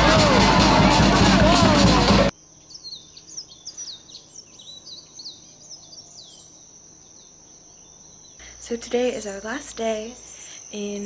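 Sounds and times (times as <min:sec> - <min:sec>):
steady high-pitched hum: 0:00.0 - 0:11.0
small birds chirping: 0:02.5 - 0:11.0.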